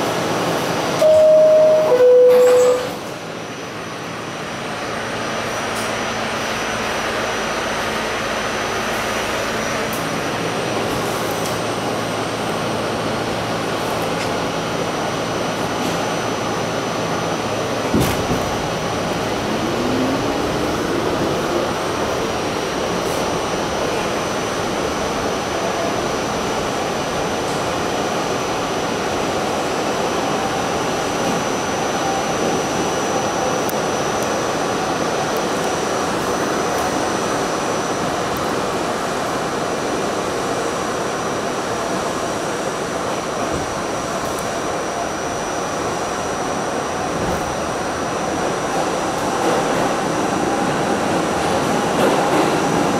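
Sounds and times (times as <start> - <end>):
subway car running hum: 0.0 - 52.9
two-note descending door chime: 1.0 - 3.0
traction motors rising whine: 18.6 - 22.8.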